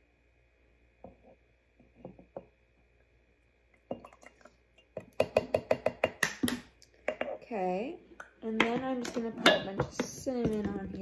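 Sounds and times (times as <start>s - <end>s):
plastic cup knocking on glass jar: 5.0s - 7.3s.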